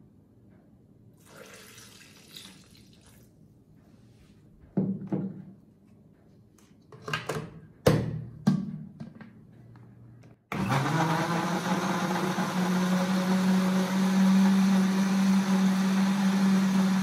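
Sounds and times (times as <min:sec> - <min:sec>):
liquid pouring and splashing: 0:01.2 - 0:03.3.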